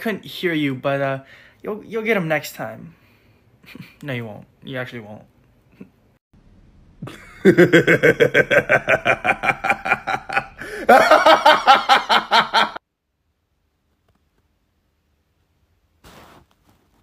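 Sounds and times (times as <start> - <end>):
man laughing hard: 7.0 - 12.8.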